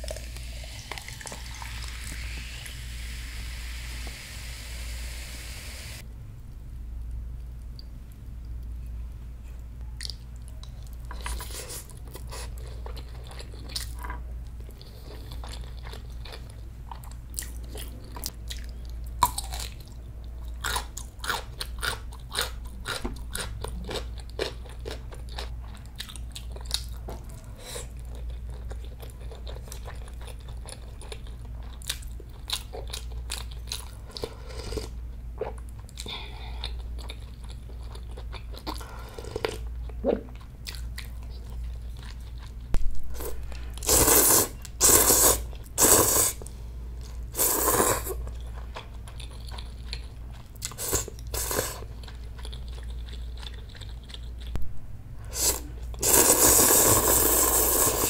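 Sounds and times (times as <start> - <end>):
steady low hum: 0.0 - 58.0
wet chewing crunches: 48.8 - 54.6.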